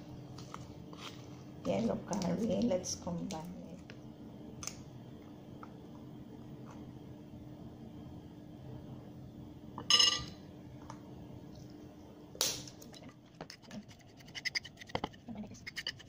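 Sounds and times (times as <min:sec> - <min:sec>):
metal spoon clinking: 0:09.9 - 0:10.4
spoon scraping in ceramic bowl: 0:14.3 - 0:16.0.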